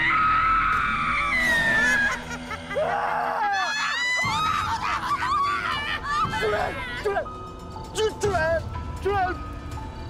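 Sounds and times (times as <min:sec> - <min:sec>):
woman screaming: 0:00.1 - 0:07.1
woman wailing cries: 0:01.4 - 0:07.3.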